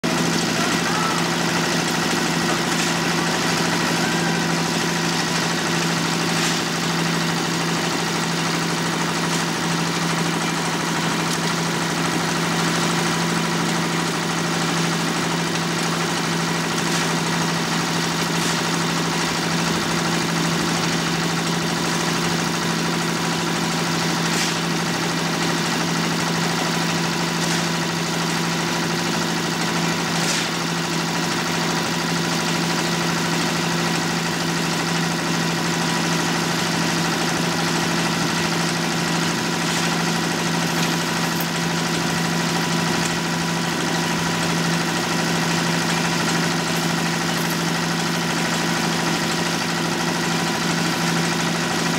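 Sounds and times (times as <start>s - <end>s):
concrete mixer engine humming: 0.0s - 51.9s.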